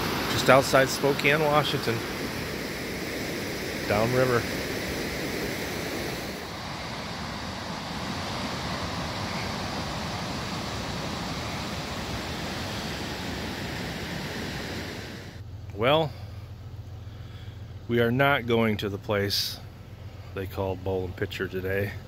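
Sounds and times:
whitewater rapids rushing: 0.0 - 15.3.

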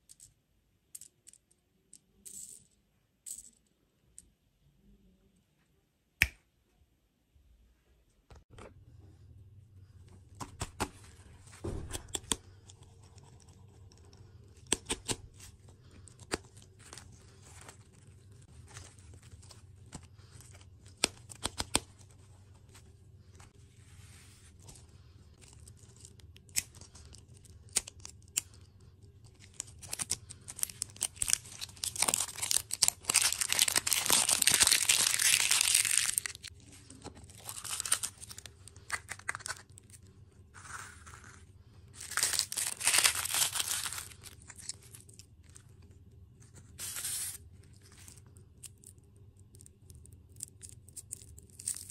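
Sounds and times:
wrapper crinkling and tearing: 29.2 - 40.0, 40.6 - 45.6, 46.8 - 51.9.

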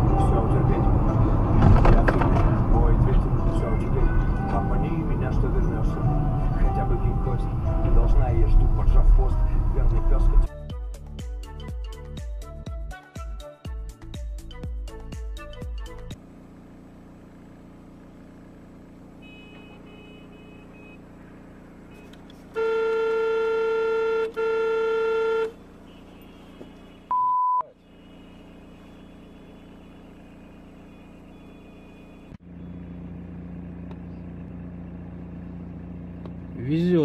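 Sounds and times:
road noise: 0.0 - 10.5, 16.2 - 37.0
traffic noise: 0.0 - 10.5, 17.4 - 37.0
car horn honking: 19.1 - 32.4.

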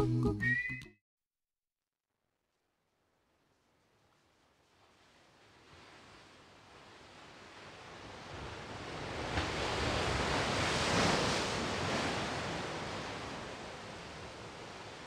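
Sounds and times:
ocean surf surging: 7.0 - 15.0.

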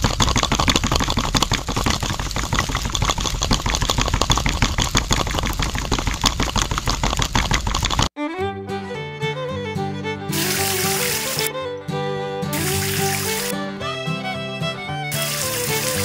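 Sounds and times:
miniature concrete mixer rattling: 0.0 - 8.1, 15.1 - 16.0.

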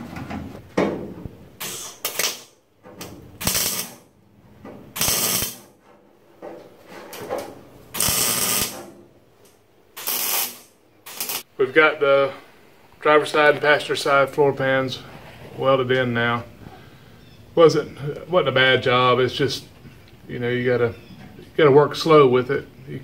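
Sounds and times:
welding arc bursts: 1.6 - 2.6, 3.4 - 4.1, 4.9 - 5.8, 7.9 - 8.9, 9.9 - 11.5.

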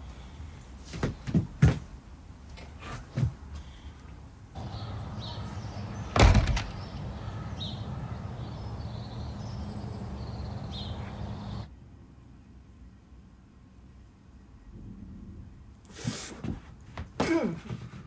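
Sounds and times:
distant traffic rumble: 0.0 - 15.9
bird chirps: 4.6 - 11.7
loud thud: 6.1 - 6.9.

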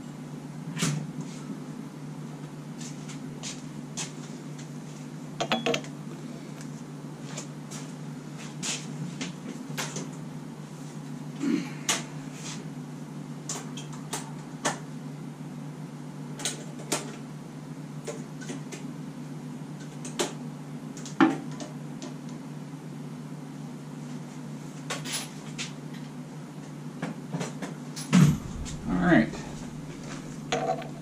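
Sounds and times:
low hum: 28.1 - 31.0.

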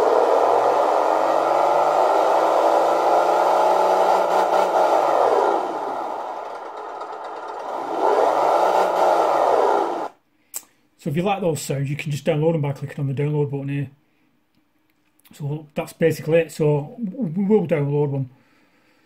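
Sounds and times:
simulated truck engine revving: 0.0 - 10.2.

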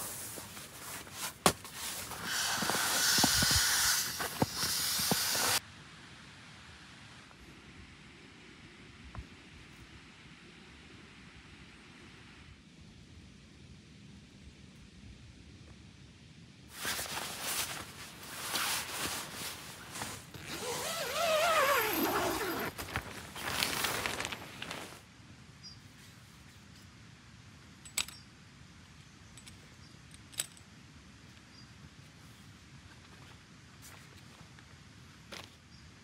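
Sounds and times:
tent fabric rustling: 0.0 - 5.6, 16.7 - 25.1.

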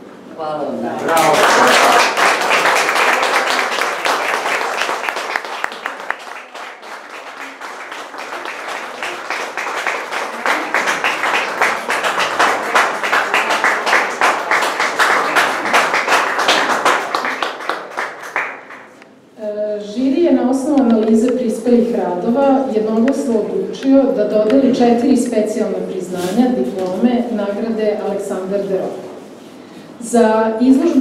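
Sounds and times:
audience applauding: 1.0 - 19.0.

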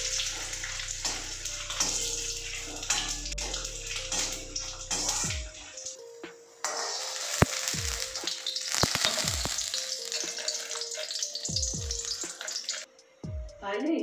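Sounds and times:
hot oil sizzling: 0.0 - 12.9.

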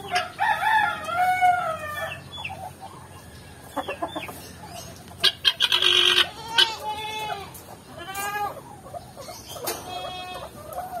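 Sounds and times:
chicken clucking: 0.0 - 11.0
rooster crowing: 0.1 - 2.2.

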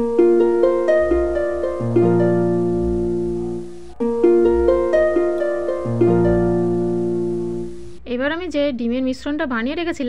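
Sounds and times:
plucked string melody: 0.0 - 8.0.

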